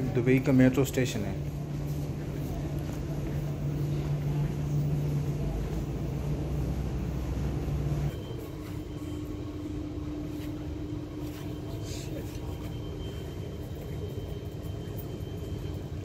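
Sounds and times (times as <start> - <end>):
vehicle engine humming: 1.2 - 8.1.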